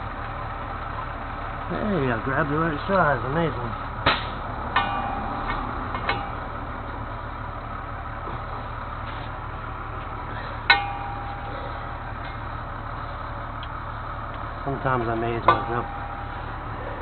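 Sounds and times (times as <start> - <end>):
truck engine idling: 0.0 - 17.0
metal clanks: 3.9 - 7.4, 10.0 - 17.0.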